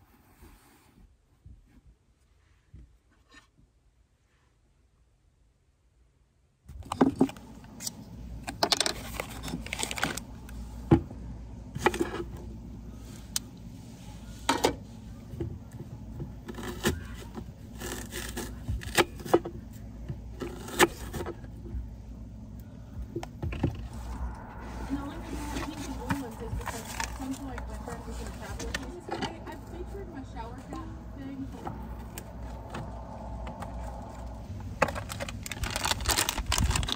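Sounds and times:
scraping and handling sounds: 6.7s - 10.6s.

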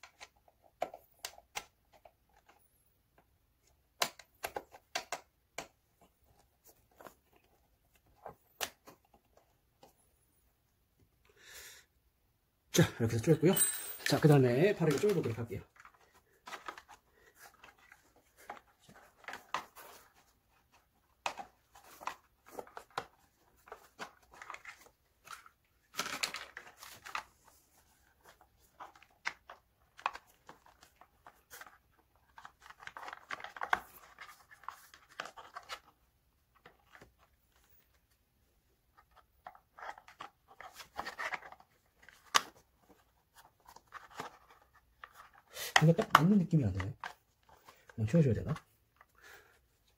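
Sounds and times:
plastic cover clicking and scraping: 14.8s - 27.4s.

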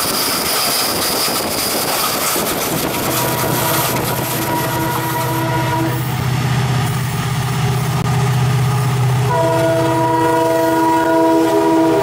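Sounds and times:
diesel locomotive throbbing: 0.0s - 12.0s
train horn blast: 3.0s - 6.2s, 9.2s - 12.0s.

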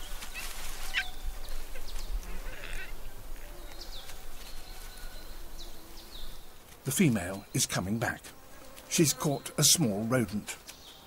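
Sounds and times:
rough animal call: 0.3s - 3.8s.

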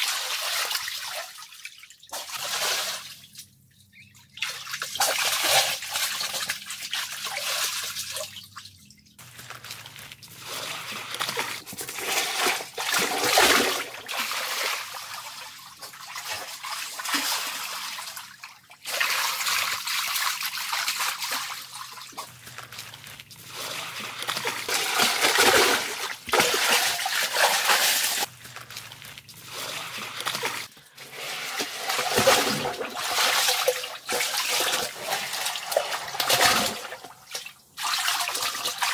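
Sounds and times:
water splashing from swimming: 23.5s - 28.3s.

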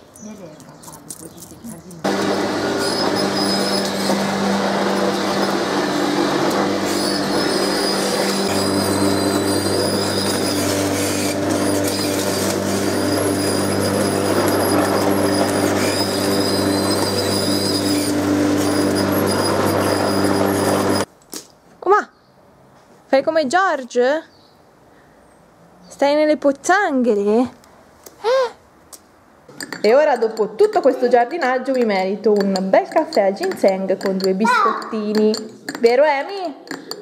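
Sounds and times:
electric lawn mower running: 2.0s - 21.1s.

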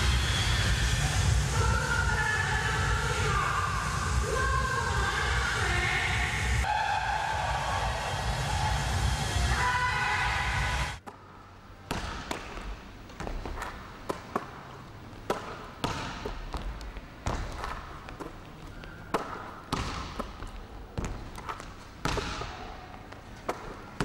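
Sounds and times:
basketballs bouncing on hardwood: 11.9s - 14.6s, 15.2s - 24.0s.

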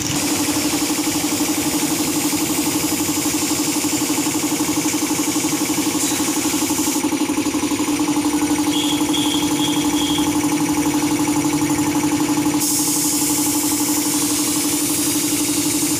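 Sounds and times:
air compressor pulsing hum: 0.0s - 15.9s
short high chirps: 8.7s - 10.4s
high air hiss: 12.6s - 15.9s.

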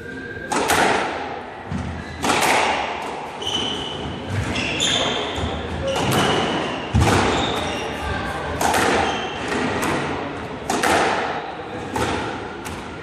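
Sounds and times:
squash ball hitting rackets and walls: 0.4s - 13.0s
shoes squeaking on wooden floor: 3.4s - 8.0s.

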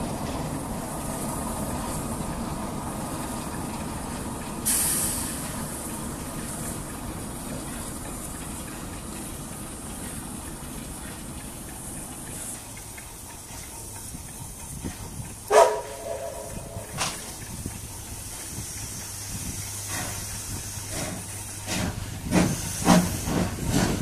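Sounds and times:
diesel locomotive running: 0.0s - 24.0s
steady hiss: 4.6s - 24.0s.

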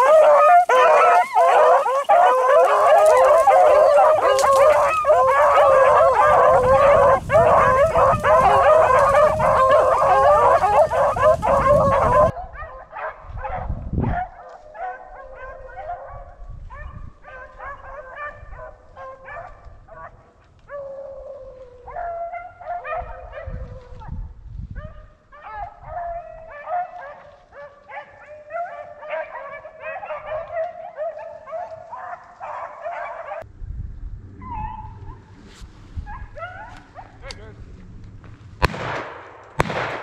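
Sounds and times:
hounds baying: 0.0s - 23.6s, 24.9s - 33.4s, 36.1s - 37.3s.

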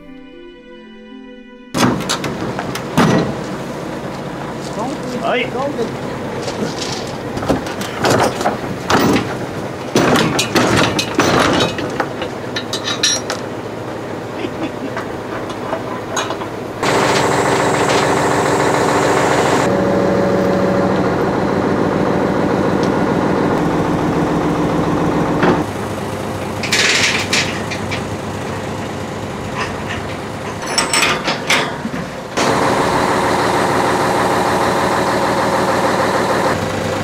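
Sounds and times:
metal clanks and knocks: 1.8s - 3.6s, 6.4s - 13.6s, 14.8s - 18.2s, 26.4s - 28.6s, 29.4s - 32.5s
hydraulic crane engine drone: 1.8s - 37.0s.

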